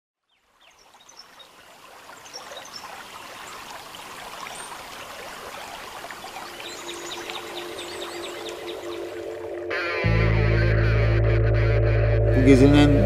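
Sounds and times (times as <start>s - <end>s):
rushing splashing water: 0.4s - 9.8s.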